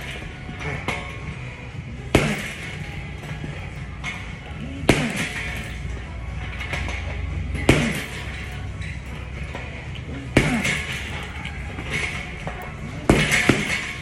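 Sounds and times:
boxing gloves punching heavy bag: 2.1s - 2.8s, 4.7s - 5.6s, 7.6s - 8.4s, 10.3s - 11.2s, 11.8s - 14.0s.

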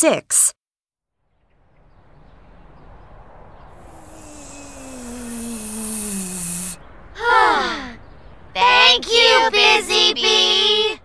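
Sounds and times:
cartoon whoosh: 3.8s - 7.8s
voice exclamation: 3.8s - 8.0s.

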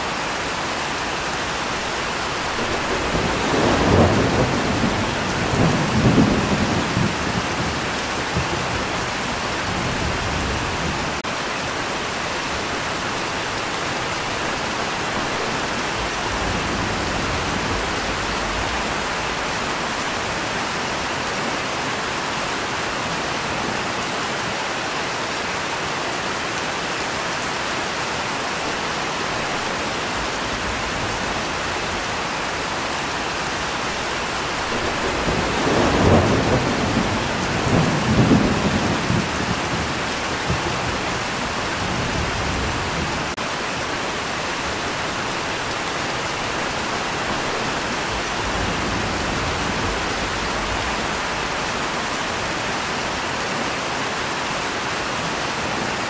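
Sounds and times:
steady rain: 0.0s - 56.0s
low rumble of thunder: 2.4s - 11.2s, 33.7s - 43.4s, 47.4s - 51.7s.

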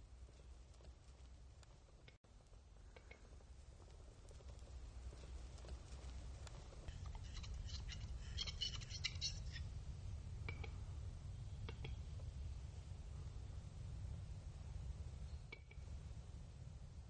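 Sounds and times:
low steady rumble: 0.0s - 17.0s
bird display song clicks: 7.1s - 9.6s, 11.6s - 12.0s, 15.3s - 15.9s.

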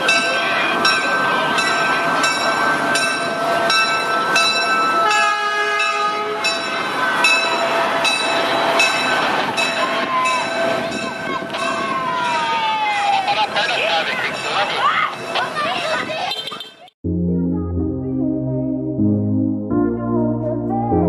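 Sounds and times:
railcar passing slowly: 0.0s - 16.4s
crossing bell ringing: 0.0s - 16.9s
railcar horn: 4.9s - 6.6s.

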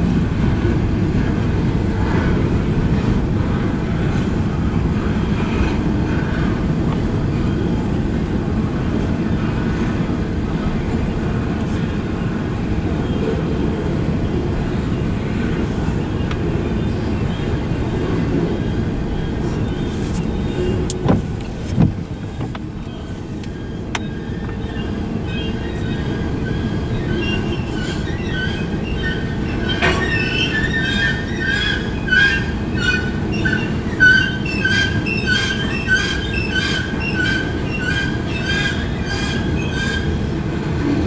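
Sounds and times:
freight cars rumbling over rails: 0.0s - 41.0s
wheel squeal: 23.0s - 40.3s.

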